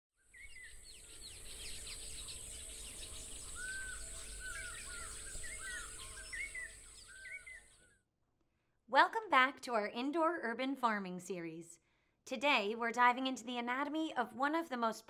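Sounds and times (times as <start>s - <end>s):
birds chirping and whistling: 0.2s - 8.0s.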